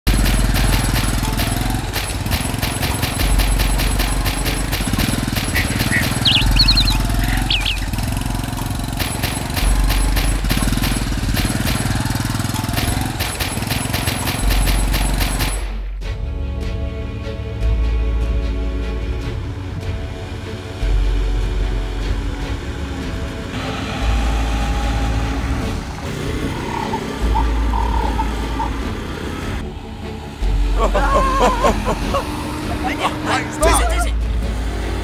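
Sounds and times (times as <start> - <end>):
music with fast beat: 0.2 - 8.6
bass line: 5.5 - 8.7
short high chirps: 5.6 - 7.9.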